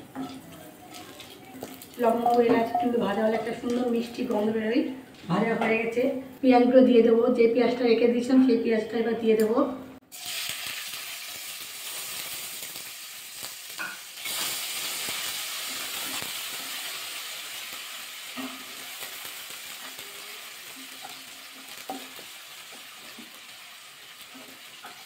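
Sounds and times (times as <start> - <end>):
onions sizzling in hot oil: 0.0 - 4.6, 10.1 - 25.0.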